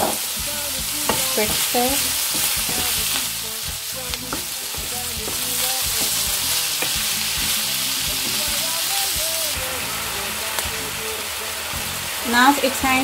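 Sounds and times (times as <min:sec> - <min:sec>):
onions and chicken sizzling in pan: 0:00.0 - 0:13.0
wooden spatula stirring: 0:01.1 - 0:03.4.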